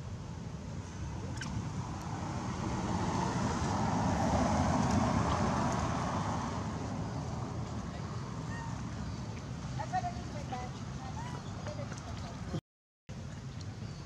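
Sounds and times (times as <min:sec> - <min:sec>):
vehicle driving past: 0:01.6 - 0:09.7.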